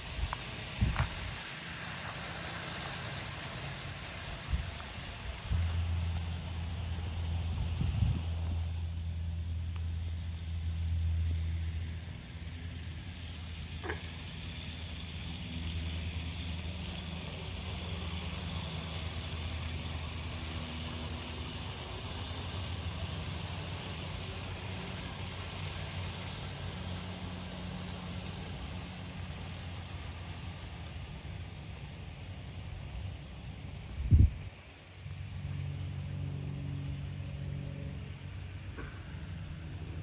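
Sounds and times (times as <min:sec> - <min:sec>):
toy train wheels on track: 0:00.0 - 0:37.3
toy train motors whirring: 0:00.0 - 0:40.0.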